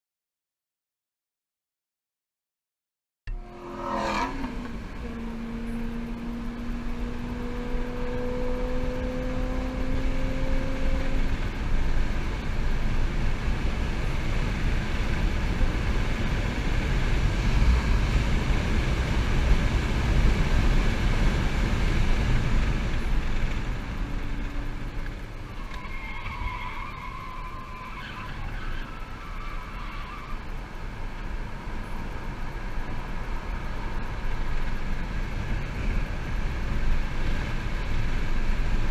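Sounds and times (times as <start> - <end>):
tires squealing: 3.3 - 5.8, 22.9 - 31.1
road and wind noise: 3.3 - 38.9.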